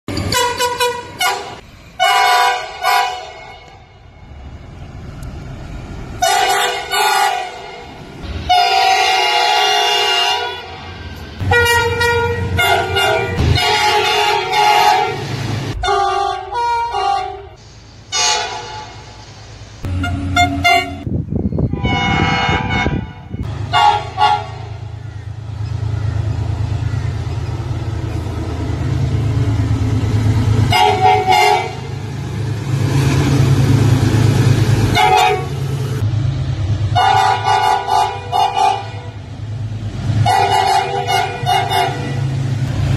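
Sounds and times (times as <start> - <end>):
diesel locomotive engine rumbling: 0.0 - 42.9
locomotive horn blasts: 0.2 - 4.0, 6.2 - 19.0, 19.8 - 21.1, 21.7 - 24.8, 30.6 - 32.0, 34.9 - 35.6, 36.9 - 39.3, 40.2 - 42.3.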